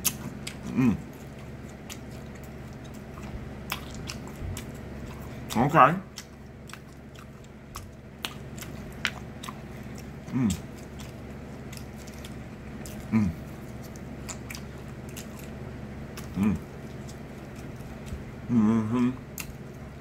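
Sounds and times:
man chewing food: 0.0 - 20.0
man humming low: 0.6 - 1.2, 10.3 - 10.7, 13.0 - 13.5, 16.3 - 16.7, 18.4 - 19.4.

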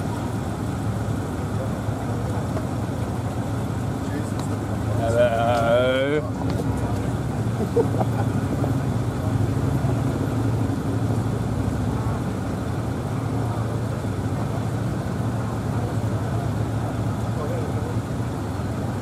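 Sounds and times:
faint voices: 0.0 - 19.0
low engine hum: 0.0 - 19.0.

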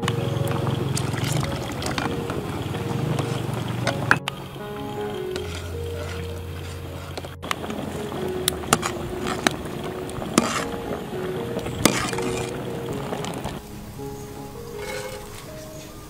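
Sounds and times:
background music: 0.0 - 16.0
ladle stirring liquid in a pot: 5.0 - 13.6, 14.8 - 15.4.

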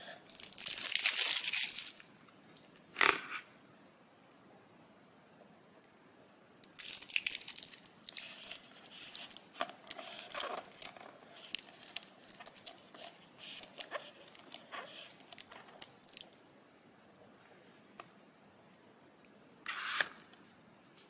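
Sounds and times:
plastic cup crinkling and clicking: 6.6 - 16.4.

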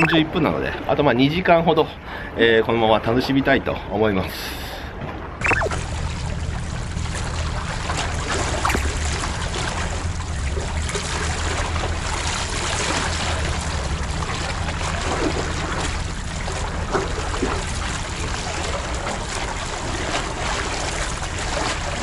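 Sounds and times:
seawater sloshing among blocks: 5.2 - 22.0
low rumble: 5.6 - 12.2.

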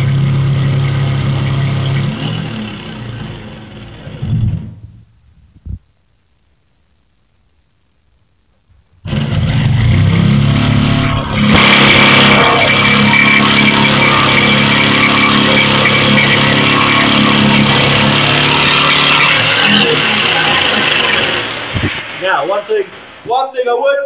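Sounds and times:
jigsaw cutting steel plate: 0.0 - 4.7, 9.1 - 22.2.

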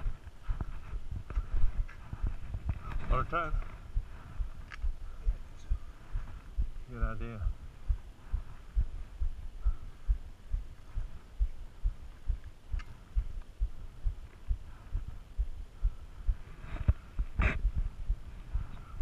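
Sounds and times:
footsteps on dirt trail: 0.0 - 7.1.

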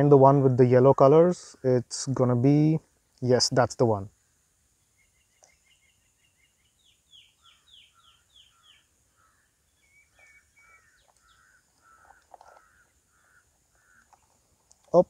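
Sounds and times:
faint birdsong: 0.0 - 15.0
faint clicks: 13.8 - 15.0.

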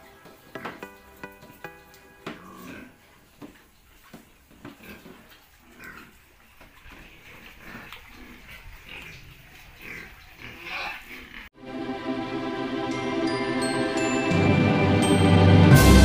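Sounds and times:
music: 0.0 - 2.5, 11.6 - 16.0
pigs calling and squealing: 0.0 - 11.5
pigs snuffling: 0.0 - 11.5.

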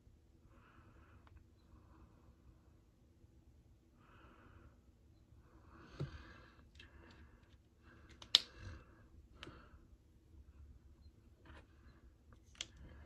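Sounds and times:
soft breaths close to microphone: 0.3 - 13.0
sharp clicks of small items: 6.7 - 8.6.

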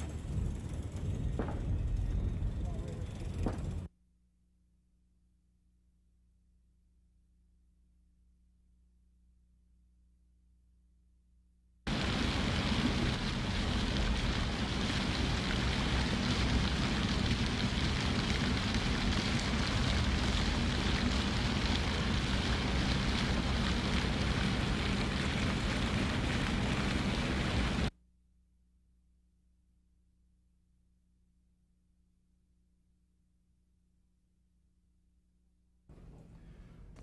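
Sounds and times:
fountain water splashing: 11.9 - 27.9.

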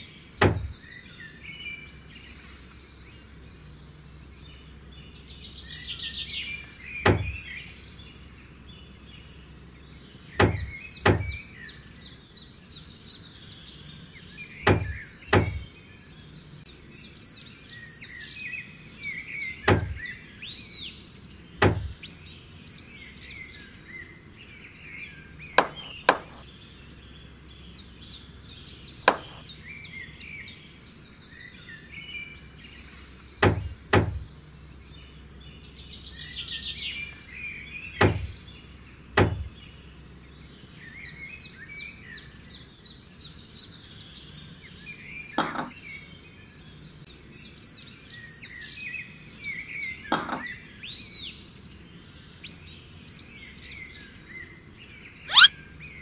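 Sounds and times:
birds chirping: 0.0 - 56.0
sharp wooden knocks: 0.4 - 0.8, 7.0 - 7.4, 10.4 - 11.4, 14.7 - 15.6, 19.7 - 20.0, 21.6 - 22.1, 25.6 - 26.4, 29.1 - 29.4, 33.4 - 34.2, 38.0 - 38.4, 39.2 - 39.5.

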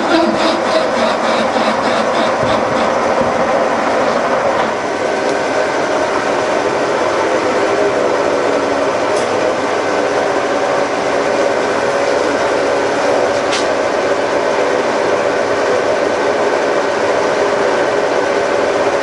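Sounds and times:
machine whine: 0.0 - 19.0
milling machine boring: 0.0 - 19.0.

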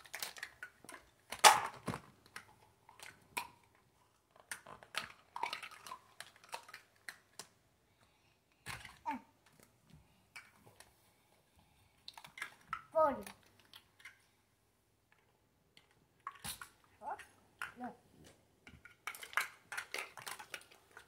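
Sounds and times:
plastic toys clattering: 0.0 - 7.5, 8.6 - 9.7, 12.1 - 14.2, 18.6 - 21.0
plastic toys knocking and clicking: 0.0 - 7.6, 8.6 - 9.7, 12.1 - 14.2, 18.6 - 21.0.

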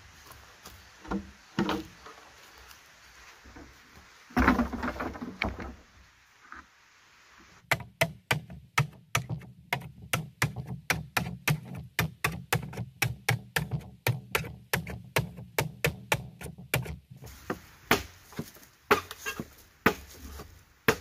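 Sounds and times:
machete chopping bamboo: 7.6 - 21.0.

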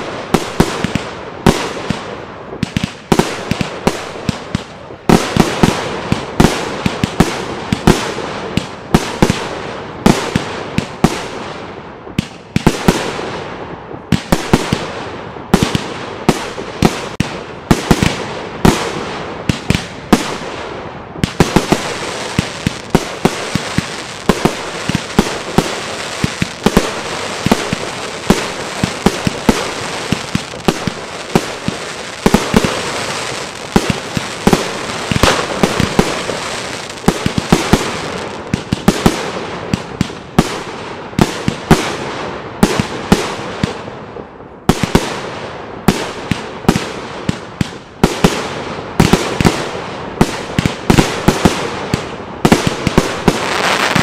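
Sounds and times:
fireworks crackling: 14.0 - 42.1, 45.9 - 54.0.

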